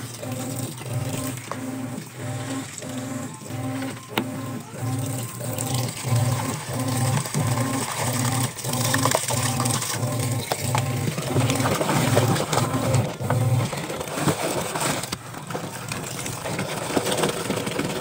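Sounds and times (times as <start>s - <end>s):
washing machine motor humming: 0.0s - 18.0s.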